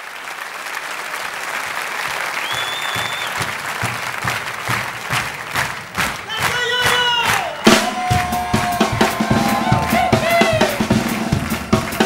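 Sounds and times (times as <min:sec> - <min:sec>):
audience applauding: 0:00.0 - 0:12.0
sustained whistle: 0:02.4 - 0:03.4.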